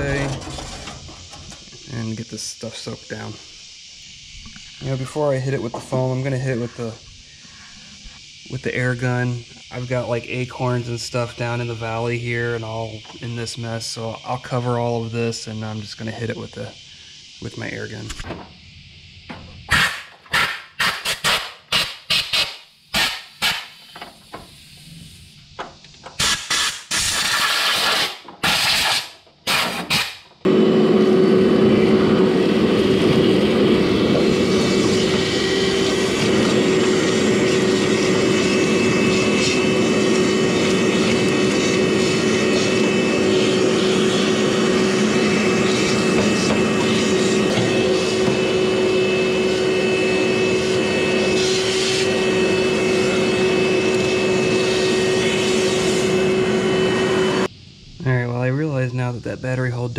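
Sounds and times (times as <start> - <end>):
loud humming machine: 0.0 - 16.7, 30.4 - 57.5
compressed air blasts: 18.6 - 25.4, 26.0 - 57.8.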